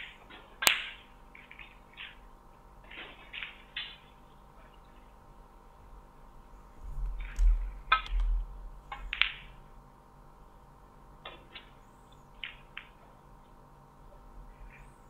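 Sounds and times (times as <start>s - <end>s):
faint steady hum: 0.0s - 15.0s
sharp clicks and knocks: 7.0s - 9.5s.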